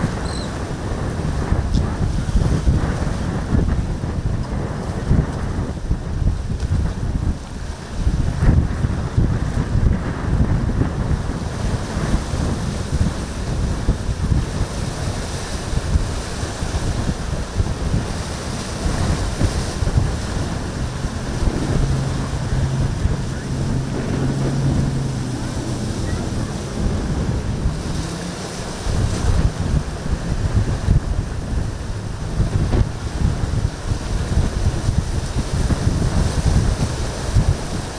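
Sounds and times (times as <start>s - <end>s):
boat engine low hum: 0.0s - 37.9s
choppy surf: 0.0s - 37.9s
wind buffeting microphone: 0.0s - 37.9s.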